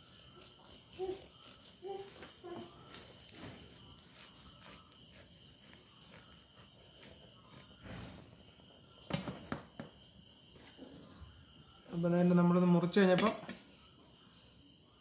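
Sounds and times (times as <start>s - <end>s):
knife sawing through burger: 0.0s - 7.9s
crickets chirring: 0.0s - 15.0s.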